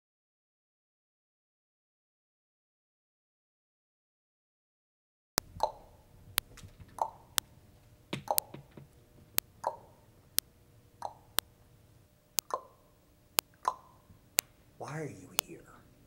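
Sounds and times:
sharp regular clicks: 0:05.4 - 0:07.5, 0:08.1 - 0:11.5, 0:12.3 - 0:14.6.

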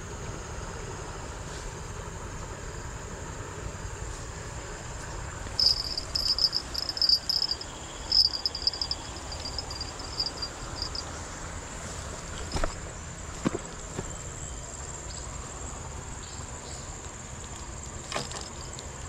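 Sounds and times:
low outdoor background noise: 0:00.0 - 0:19.0
insects trilling: 0:02.7 - 0:19.0
high-pitched insect drone: 0:05.6 - 0:11.4.

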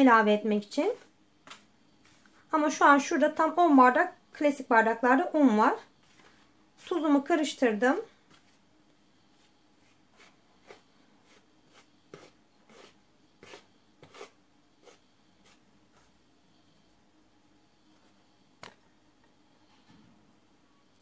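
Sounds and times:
hand swishing through flour: 0:09.4 - 0:16.1.

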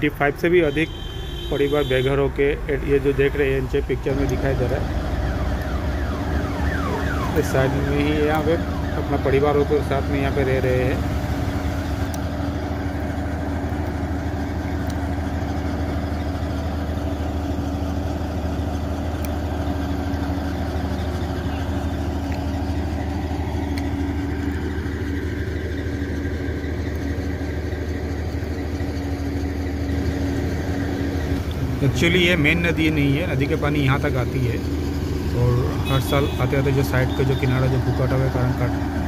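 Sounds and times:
engine running steadily: 0:00.0 - 0:39.0.

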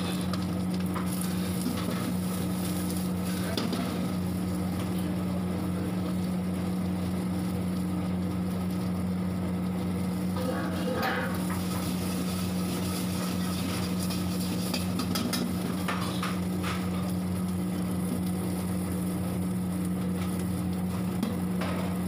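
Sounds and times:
kitchen machine hum: 0:00.0 - 0:22.0
metal ladle scraping wok: 0:10.4 - 0:16.3.

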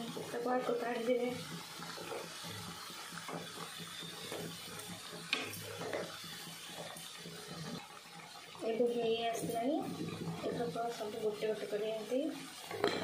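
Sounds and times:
food sizzling in hot oil: 0:00.0 - 0:13.0.

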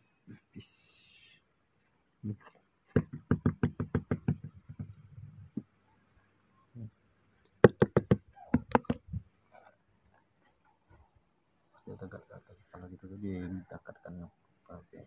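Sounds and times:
knocking on wooden floorboards: 0:02.9 - 0:05.0, 0:07.6 - 0:09.0.

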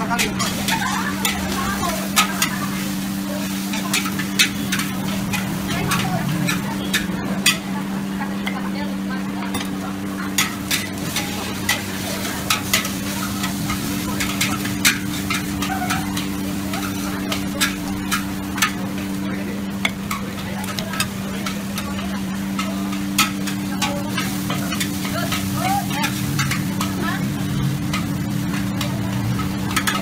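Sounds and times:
noodles sizzling: 0:00.0 - 0:30.0
metal spatula clanking on wok: 0:03.7 - 0:07.7, 0:10.3 - 0:19.1, 0:19.8 - 0:27.0, 0:27.8 - 0:30.0.

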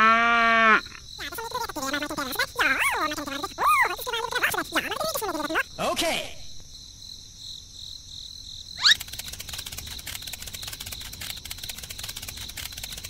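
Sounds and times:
insects chirring: 0:00.0 - 0:13.0
fast even ticking: 0:08.8 - 0:13.0.

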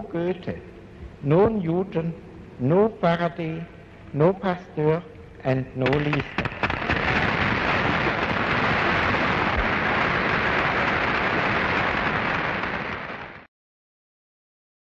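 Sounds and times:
audience applauding: 0:06.0 - 0:13.4.

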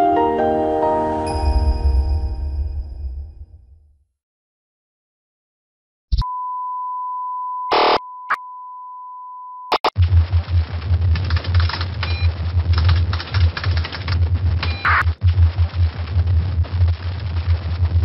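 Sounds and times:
steady test tone beep: 0:06.2 - 0:09.9
crackling static: 0:07.7 - 0:08.0, 0:09.7 - 0:18.0.

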